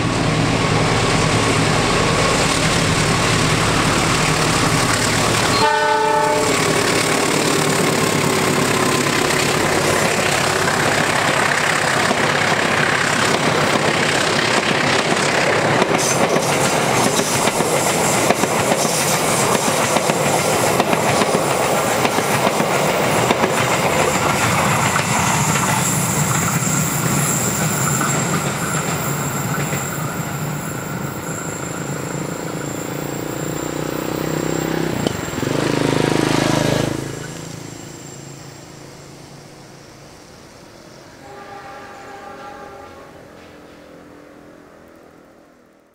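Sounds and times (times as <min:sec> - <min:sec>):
locomotive horn: 0:05.4 - 0:07.5, 0:41.1 - 0:43.5
train wheels clattering over rails: 0:06.4 - 0:37.4.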